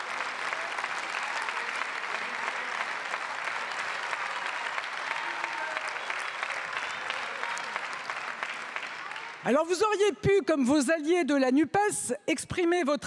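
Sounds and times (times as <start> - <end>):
crowd clapping: 0.0 - 10.0.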